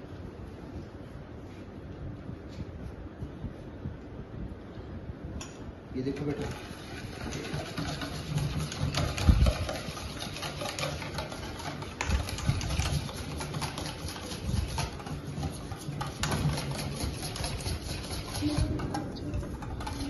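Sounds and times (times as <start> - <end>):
whisk rattling in metal bowl: 6.0 - 20.0
whisk knocking bowl: 6.1 - 20.0.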